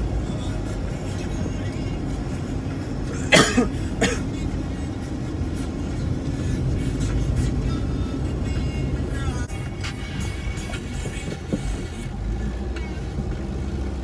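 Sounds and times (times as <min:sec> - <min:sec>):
car cabin rumble: 0:00.0 - 0:14.0
man coughing: 0:03.1 - 0:04.6.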